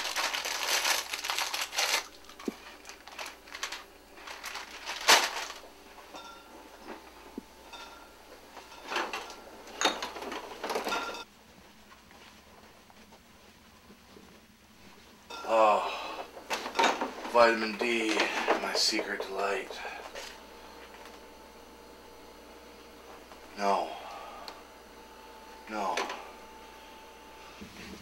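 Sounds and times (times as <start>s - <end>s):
handling rustling: 0.0s - 5.8s.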